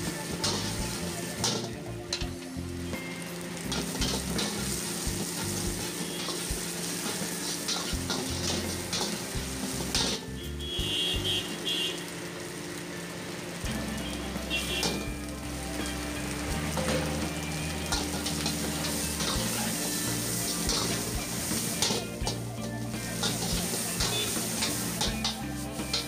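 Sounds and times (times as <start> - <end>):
metal spatula scraping a pan: 0.0 - 2.4, 3.6 - 10.5, 16.7 - 26.0
food sizzling in a wok: 0.0 - 26.0.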